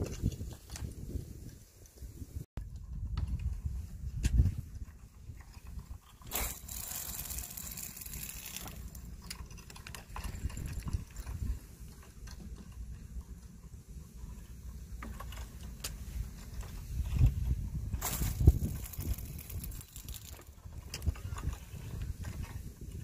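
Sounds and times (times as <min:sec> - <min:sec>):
wind rumble on microphone: 0:00.0 - 0:23.0.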